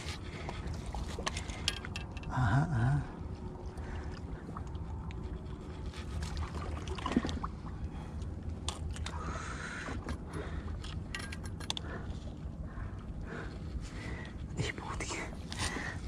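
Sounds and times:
steady low rumble: 0.0 - 16.0
fishing tackle clicking and rattling: 1.2 - 2.4, 10.0 - 12.2.

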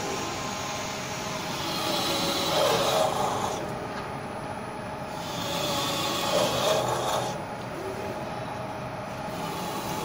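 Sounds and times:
drilling machine grinding metal: 0.0 - 3.8, 5.1 - 7.5, 9.1 - 10.0.

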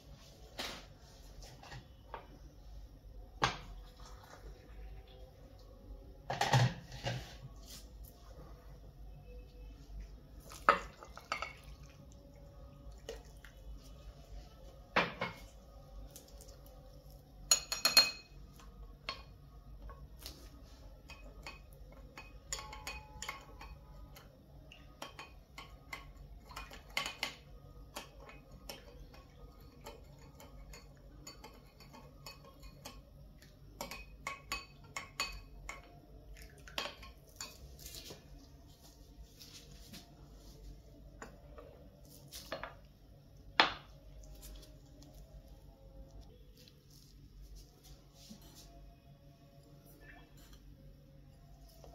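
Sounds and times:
dishes and utensils clinking: 10.5 - 12.1, 14.9 - 15.6, 17.4 - 20.1, 21.0 - 38.4.

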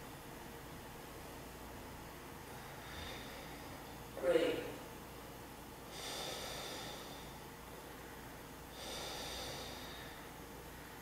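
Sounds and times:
slow deep breathing: 2.5 - 4.0, 5.9 - 11.0.

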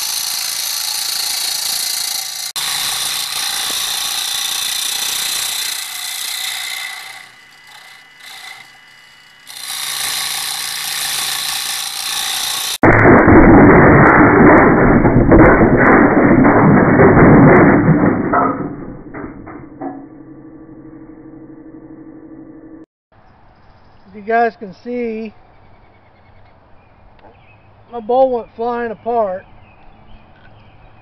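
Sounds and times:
gouge cutting wood on lathe: 0.0 - 12.8
lathe humming: 0.1 - 12.8
sharp knocks: 14.3 - 22.0.

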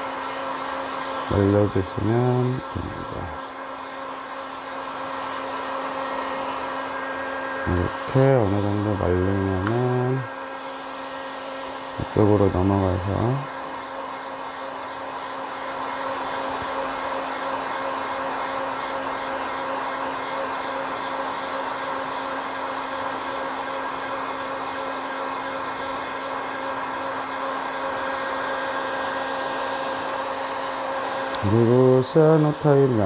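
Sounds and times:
heat gun blowing air: 0.0 - 33.0
motor hum: 29.0 - 33.0.

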